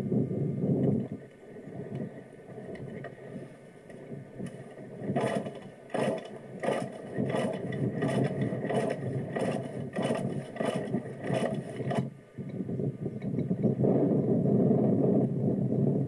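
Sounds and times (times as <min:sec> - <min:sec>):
mechanical scraping strokes: 0:04.4 - 0:12.1.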